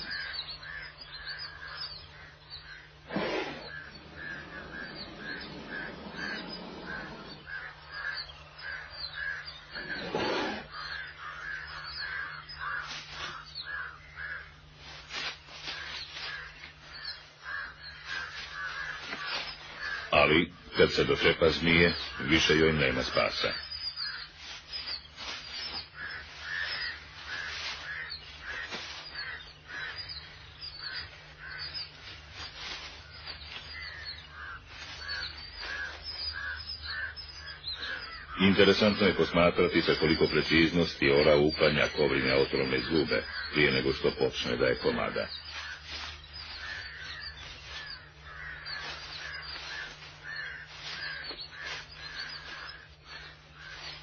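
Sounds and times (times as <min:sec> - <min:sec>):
bird calling: 0:00.0 - 0:54.0
steady low hum: 0:00.0 - 0:54.0.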